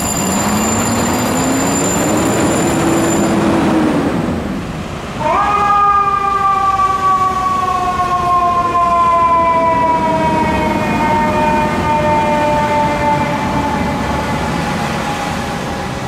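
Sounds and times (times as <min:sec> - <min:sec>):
mechanical siren wailing: 0:00.0 - 0:03.7, 0:05.2 - 0:16.0
truck engine rumble: 0:00.0 - 0:05.2.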